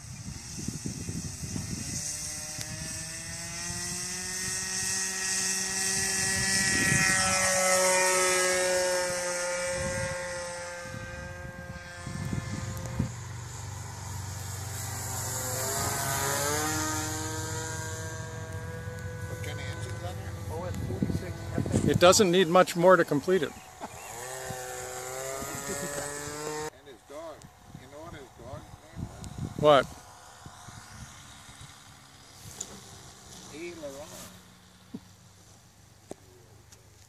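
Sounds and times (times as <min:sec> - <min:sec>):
wind buffeting microphone: 0:00.0 - 0:33.1
model airplane motor and propeller: 0:00.0 - 0:37.0.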